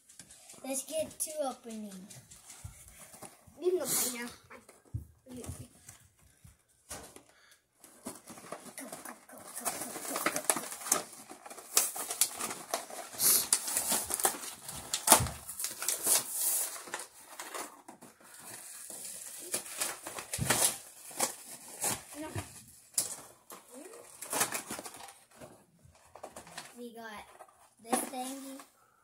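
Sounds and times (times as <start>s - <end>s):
plastic packaging crinkling: 7.0s - 28.9s.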